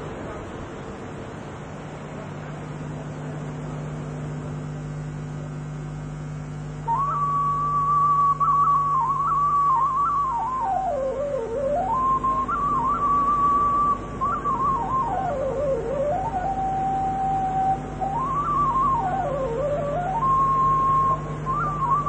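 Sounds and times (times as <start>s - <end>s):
low steady hum: 0.0s - 22.0s
wavering whistle tone: 6.8s - 22.0s.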